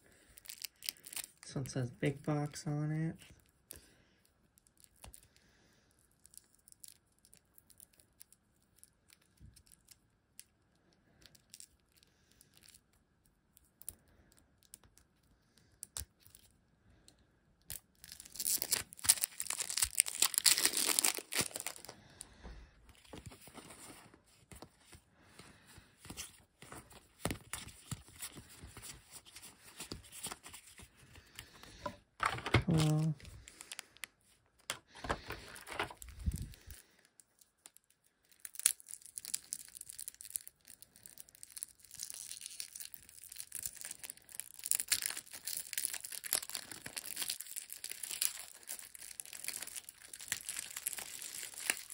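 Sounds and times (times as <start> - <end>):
plastic wrapping tearing: 0.0 - 1.6, 17.7 - 22.3, 26.0 - 36.8, 37.4 - 51.9
cards rustling and clicking: 18.2 - 36.8.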